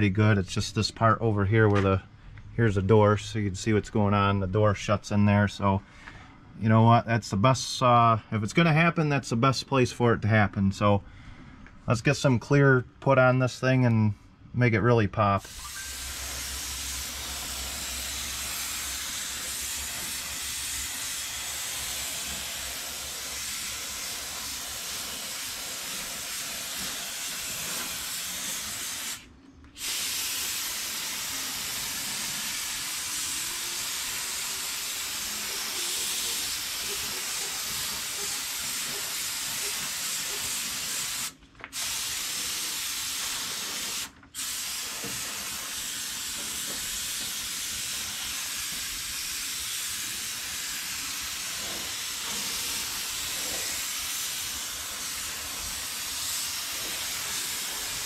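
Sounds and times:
paint spray gun hissing: 15.5s - 58.0s.

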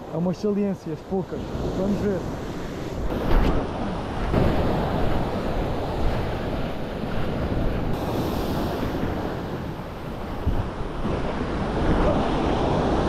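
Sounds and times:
sea waves and surf: 0.0s - 13.0s
wind buffeting microphone: 1.4s - 13.0s.

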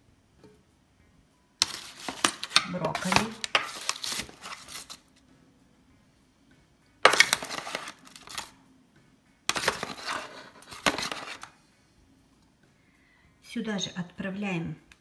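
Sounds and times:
foil crinkling: 1.6s - 5.0s, 7.1s - 8.5s, 9.5s - 11.5s
metal spoon scraping foil pan: 1.6s - 5.0s, 7.1s - 8.5s, 9.5s - 11.5s.

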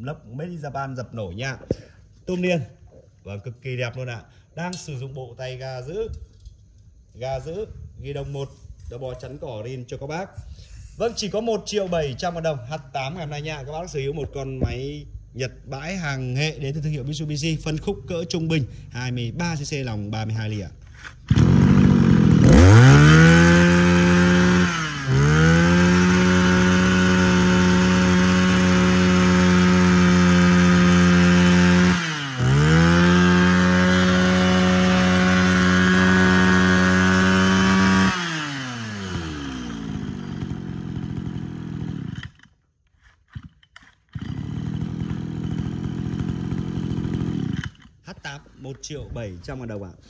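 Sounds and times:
brush cutter engine revving: 20.9s - 48.0s.

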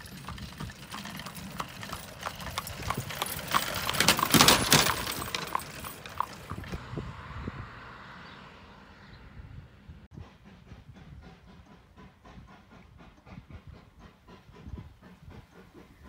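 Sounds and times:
horse hooves clip-clopping on asphalt: 0.0s - 6.8s
buggy wheels on road: 0.0s - 10.1s.

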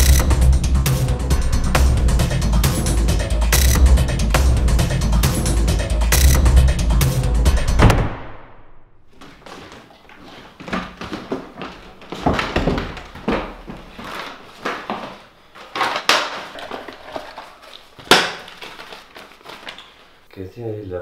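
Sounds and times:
paper rustling: 13.0s - 20.3s.

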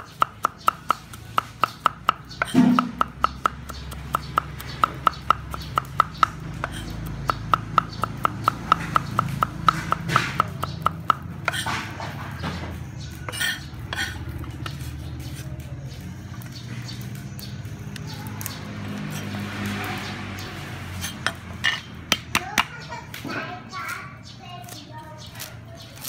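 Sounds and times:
cleaver chopping on wooden board: 0.0s - 12.7s, 13.3s - 15.5s, 21.0s - 22.7s
blade scraping a board: 6.6s - 7.0s, 11.4s - 12.6s, 13.3s - 15.5s.

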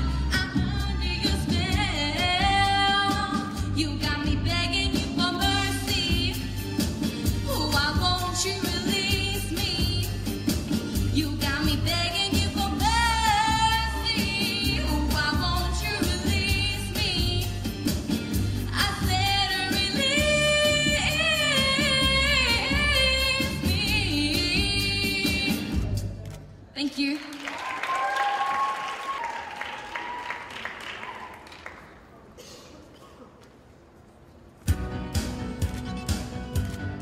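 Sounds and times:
girl singing into microphone: 0.0s - 6.4s, 7.4s - 10.2s, 11.1s - 17.6s, 18.7s - 25.7s
instrumental backing with bass and drums: 0.0s - 26.1s.

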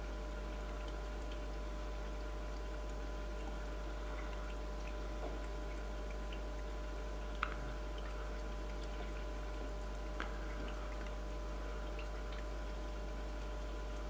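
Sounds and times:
faint water drips: 0.0s - 14.0s
steady low hum: 0.0s - 14.0s.

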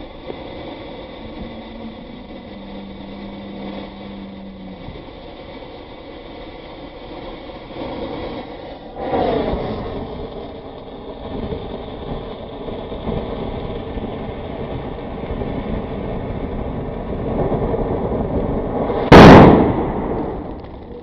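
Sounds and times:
firework spraying sparks hissing: 0.0s - 21.0s
loud firework bang: 0.0s - 21.0s.

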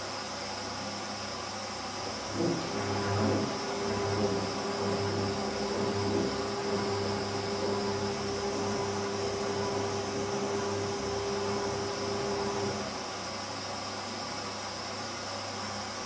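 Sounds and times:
steady whine: 2.0s - 13.0s
washing machine drum turning: 2.3s - 12.8s.

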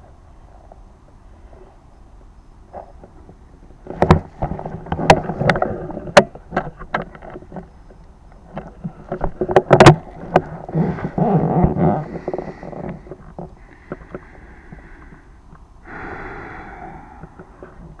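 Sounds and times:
rustling: 2.7s - 15.2s
sharp clicks and knocks: 3.0s - 10.7s.

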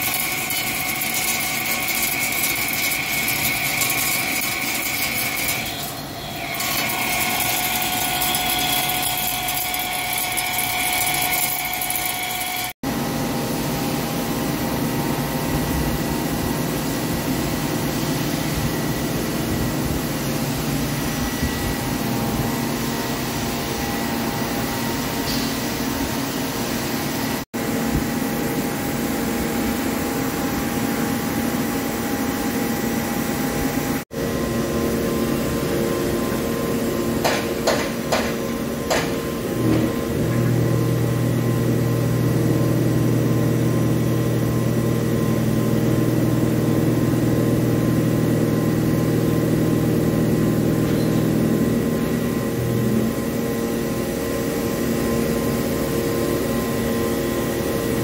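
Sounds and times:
lathe cutting with high tones: 0.0s - 12.8s
machine running noise: 0.0s - 58.0s.

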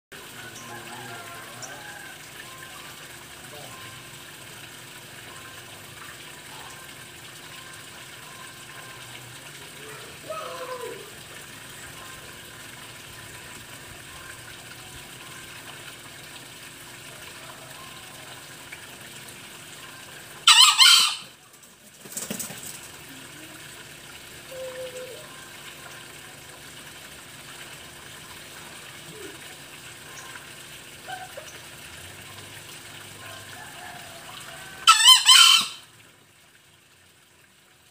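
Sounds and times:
junglefowl crowing: 0.4s - 2.6s, 9.9s - 11.1s, 20.4s - 21.4s, 33.2s - 35.9s.

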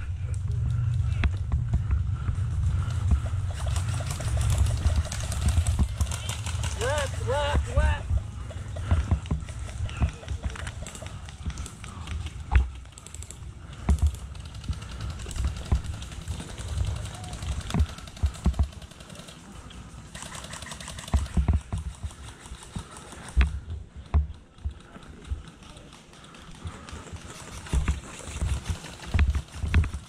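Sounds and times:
low thumps: 0.0s - 6.8s.

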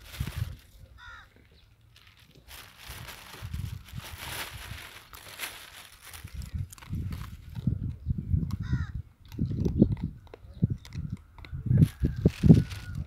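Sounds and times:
puppy chewing and crunching food: 6.3s - 8.6s, 9.2s - 13.0s.

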